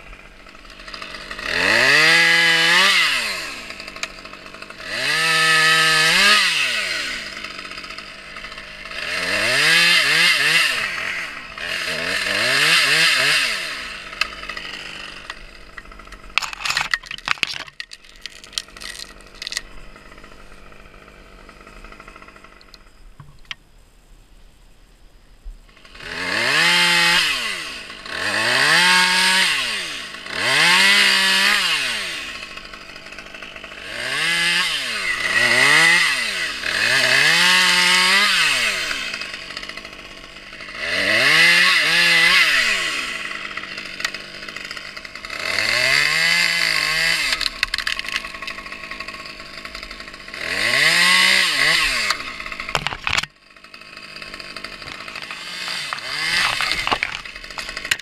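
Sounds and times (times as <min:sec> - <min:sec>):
chainsaw revving: 0:00.0 - 0:23.5, 0:25.7 - 0:58.0
chainsaw idling: 0:00.0 - 0:23.6, 0:25.6 - 0:58.0
sharp clicks: 0:22.6 - 0:23.6.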